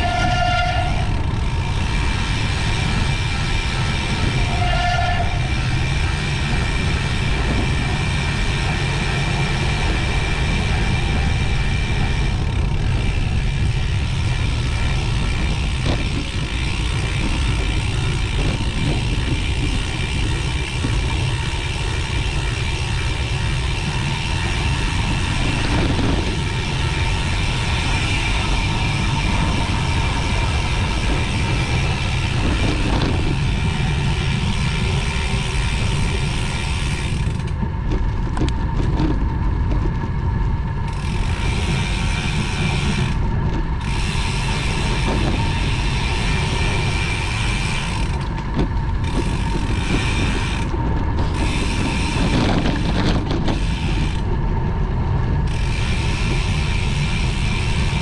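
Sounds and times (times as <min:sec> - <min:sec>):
tyres rolling on road: 0:00.0 - 0:58.0
wind on microphone: 0:00.0 - 0:58.0.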